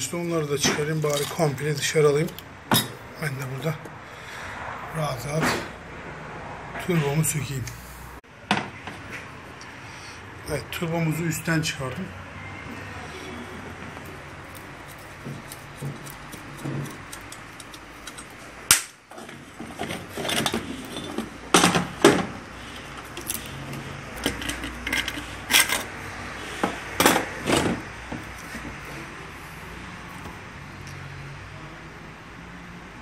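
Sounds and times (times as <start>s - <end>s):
metal tools clanking on concrete: 0.6s - 3.0s, 19.2s - 22.2s, 23.0s - 26.0s.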